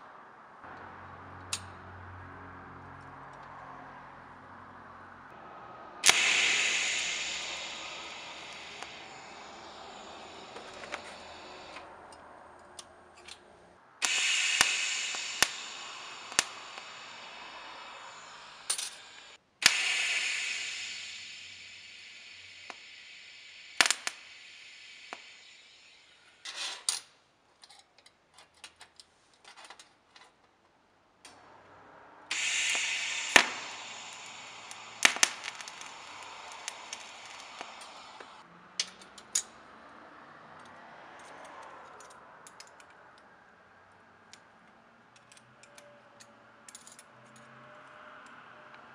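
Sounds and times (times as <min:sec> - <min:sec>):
welding arc hissing: 0:06.0 - 0:12.2, 0:14.0 - 0:26.3, 0:32.3 - 0:38.4
sharp clicks: 0:06.0 - 0:13.4, 0:14.0 - 0:26.0, 0:32.3 - 0:38.4.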